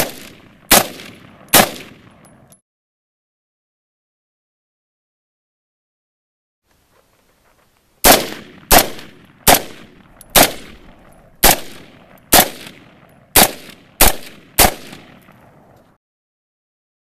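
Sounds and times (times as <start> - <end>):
rifle shots with echo: 0.0 - 2.5, 8.0 - 15.8.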